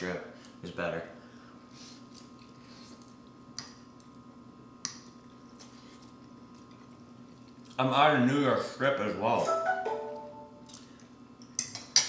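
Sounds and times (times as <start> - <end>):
faint steady hum: 0.0 - 12.0
soft chewing: 1.4 - 4.3, 4.9 - 7.8.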